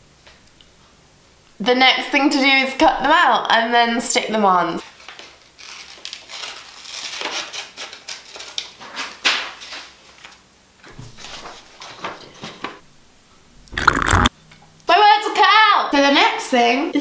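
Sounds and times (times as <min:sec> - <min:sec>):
paper rustling and crinkling: 0:04.8 - 0:10.4, 0:11.0 - 0:12.7.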